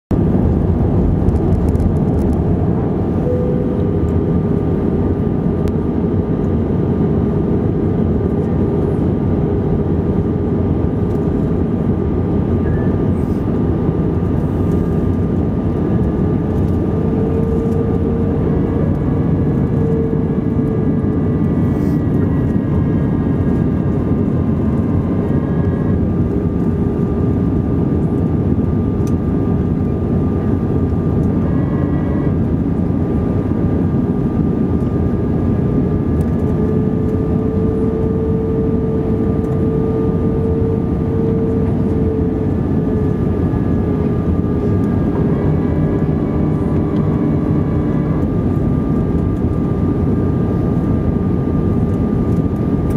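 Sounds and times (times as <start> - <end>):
airflow rush and engine drone: 0.1 - 52.9
humming tone: 0.1 - 52.9
thin steady higher tone: 3.1 - 4.5.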